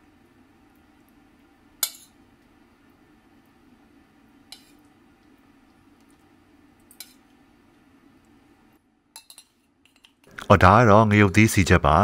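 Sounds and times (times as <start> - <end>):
low steady hum: 0.0 - 12.0
metal spoon clinking on dishes: 1.8 - 2.2, 4.5 - 4.8, 6.9 - 7.2, 9.1 - 10.2.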